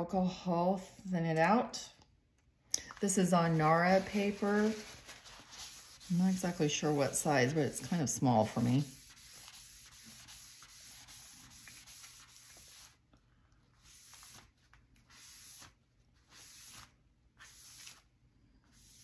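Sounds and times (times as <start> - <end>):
towel rubbing on wet paper: 3.4 - 13.0, 13.8 - 18.1, 18.7 - 19.0.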